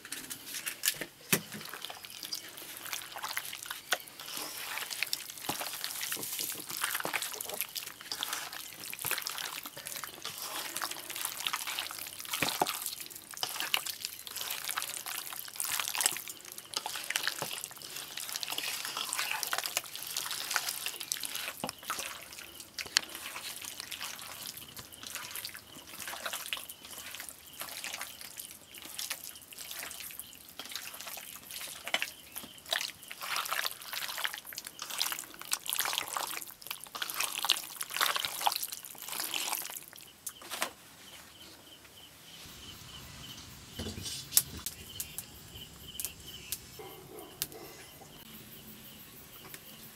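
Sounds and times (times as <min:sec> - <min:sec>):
wet squishing of kneaded meat: 0:01.2 - 0:40.6.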